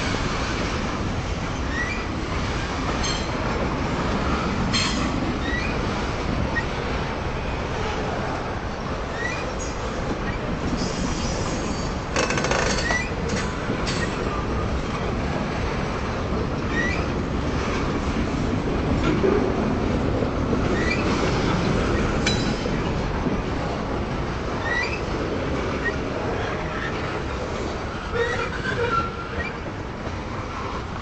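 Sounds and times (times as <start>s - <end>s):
freight train rumbling on rails: 0.0s - 31.0s
high wheel squeals: 9.1s - 13.2s, 16.7s - 17.1s, 28.1s - 29.7s.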